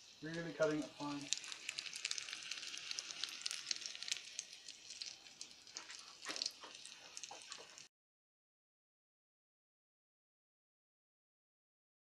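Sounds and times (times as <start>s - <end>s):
hot oil crackling in frying pan: 0.0s - 7.9s.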